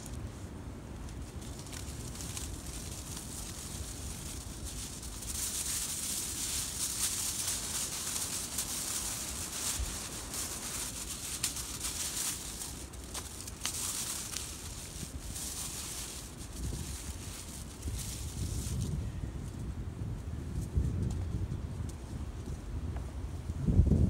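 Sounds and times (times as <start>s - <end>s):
aluminium foil crinkling: 0.0s - 0.3s, 1.0s - 19.0s
low rumble of wind: 0.0s - 24.0s.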